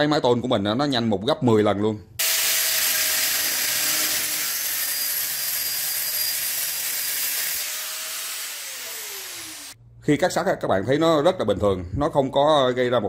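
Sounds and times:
angle grinder cutting steel: 2.2 - 9.8
grinder disc spinning down: 2.2 - 9.8.

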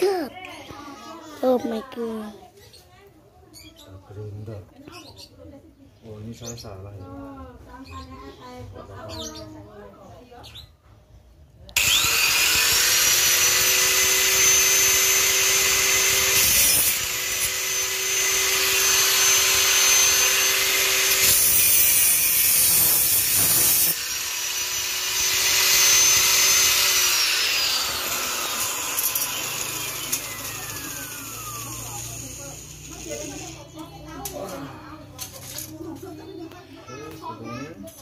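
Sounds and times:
angle grinder cutting metal: 11.8 - 34.6.

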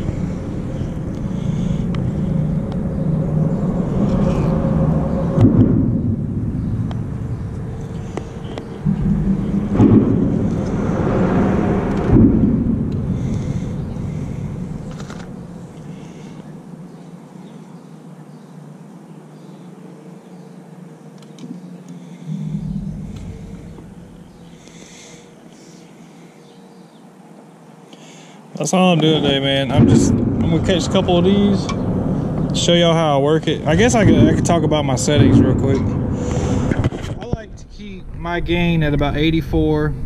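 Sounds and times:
traffic rumble overhead: 0.0 - 40.0
sharp thumps: 5.3 - 16.0, 22.3 - 24.9, 29.7 - 32.6.

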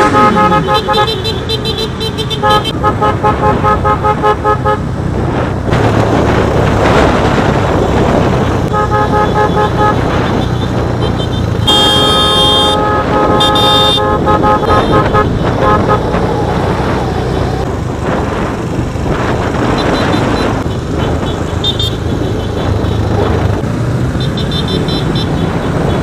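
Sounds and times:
motorcycle horns honking: 0.0 - 4.9, 8.7 - 16.4, 19.8 - 23.0, 24.2 - 26.0
motorcycle engines running: 0.0 - 26.0
road noise: 0.0 - 26.0.

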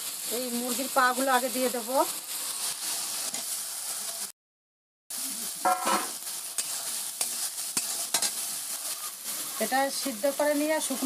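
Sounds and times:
food sizzling in a metal pan: 0.0 - 4.4, 5.1 - 11.0
metal spatula scraping a pan: 2.3 - 4.3, 5.6 - 10.2.

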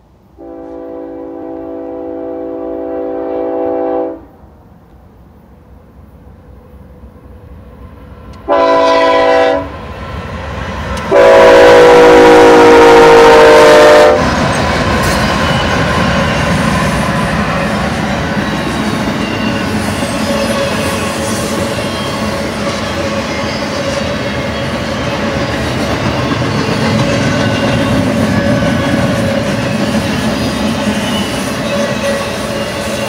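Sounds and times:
train passing: 0.0 - 33.0
train air horn blasts: 0.4 - 4.4, 8.4 - 9.8, 11.1 - 14.2.

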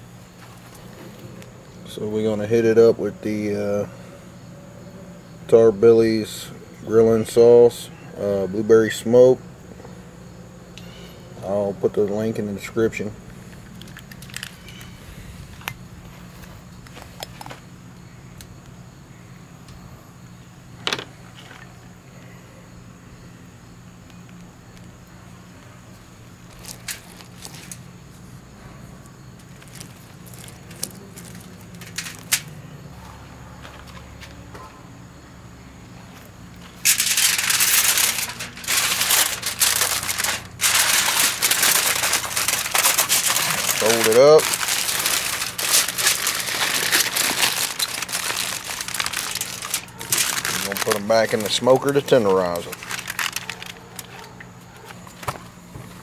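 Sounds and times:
steady low hum: 0.0 - 56.0
aluminium foil crinkling: 13.5 - 15.0, 26.5 - 27.9, 29.4 - 32.5, 36.7 - 54.9.

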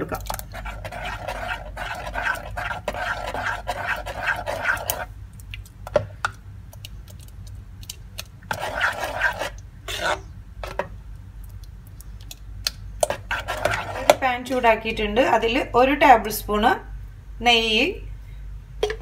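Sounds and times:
spoon scraping in a pot: 0.3 - 5.1, 8.5 - 10.8, 13.0 - 14.6.

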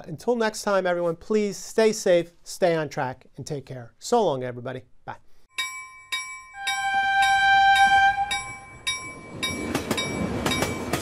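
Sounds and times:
crossing bell dinging: 5.5 - 11.0
train horn blast: 6.6 - 8.7
train wheels clicking over rails: 8.9 - 11.0.

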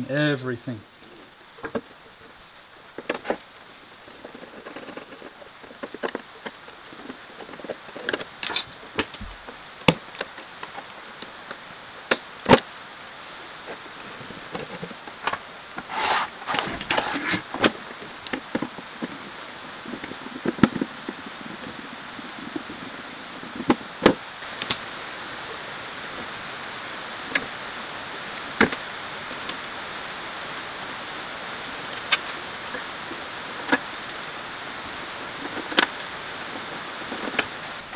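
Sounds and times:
steady hiss: 0.0 - 37.9
metal parts knocking and clinking: 8.4 - 8.8.

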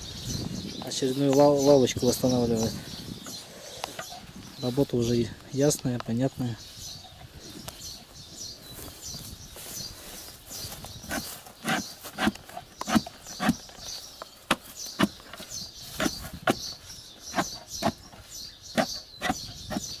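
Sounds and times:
spade digging in soil: 11.0 - 13.7, 14.4 - 16.7.

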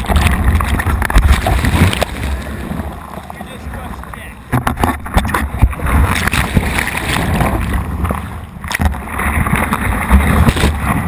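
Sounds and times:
waves churning and gurgling: 0.0 - 11.0
wind buffeting camera: 3.5 - 11.0.

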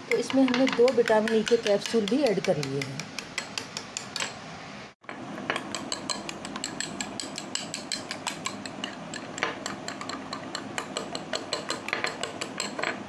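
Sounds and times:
spoon clinking against glass bowl: 5.5 - 13.0.

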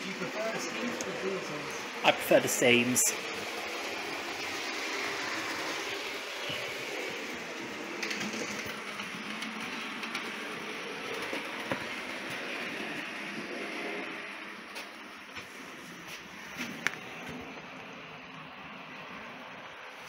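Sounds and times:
model train motors whirring: 0.0 - 20.0.

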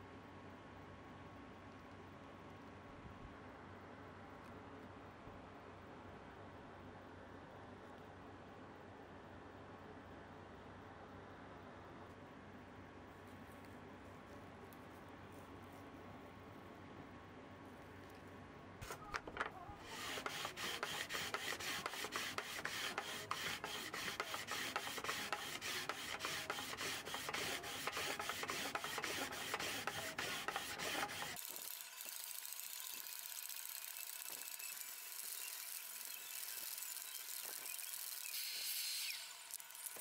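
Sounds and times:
sanding block scrubbing wood: 19.8 - 31.4.

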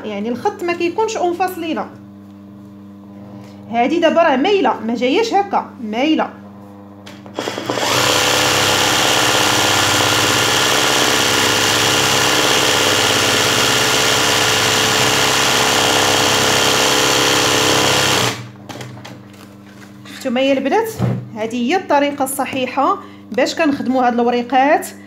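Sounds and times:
sewing machine stitching: 7.4 - 18.5.

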